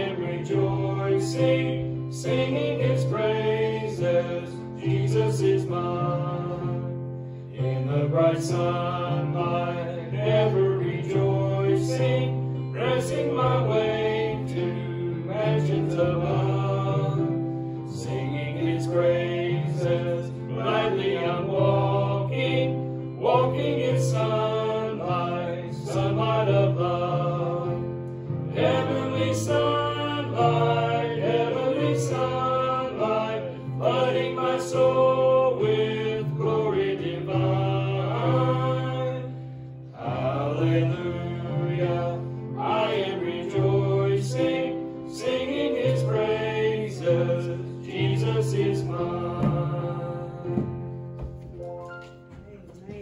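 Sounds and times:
congregation singing a hymn: 0.0 - 53.0.

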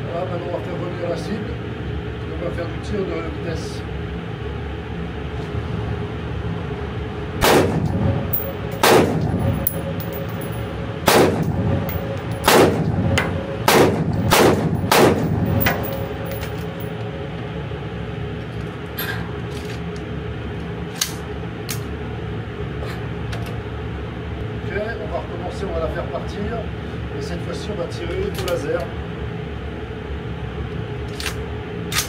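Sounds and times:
steady background hum: 0.0 - 32.0
rifle shots echoing indoors: 7.4 - 16.6.

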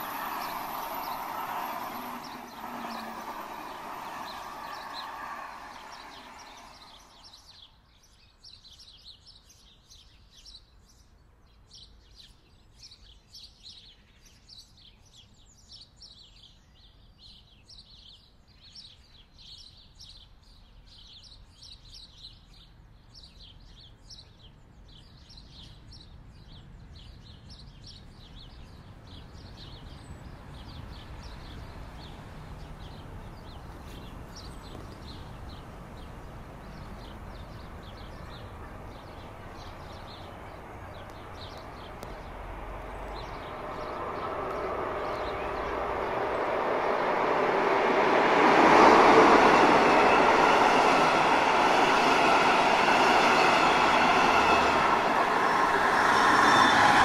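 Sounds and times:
train passing: 0.0 - 7.7, 29.6 - 57.0
small birds chirping: 0.0 - 11.0, 20.9 - 57.0.

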